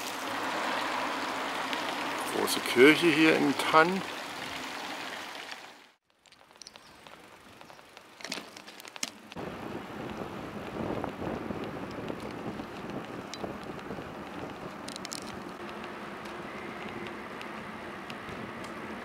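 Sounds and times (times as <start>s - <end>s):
bicycle tyres rolling on asphalt: 0.0s - 19.0s
wind noise: 9.4s - 15.7s.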